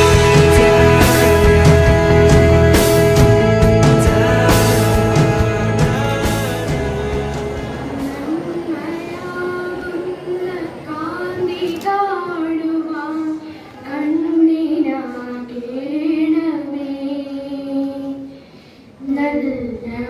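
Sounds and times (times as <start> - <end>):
child singing: 8.0 - 18.3.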